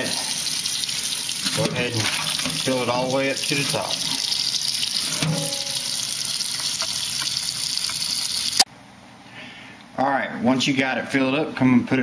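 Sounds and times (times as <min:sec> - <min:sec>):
tap water pouring into pot: 0:00.0 - 0:08.7.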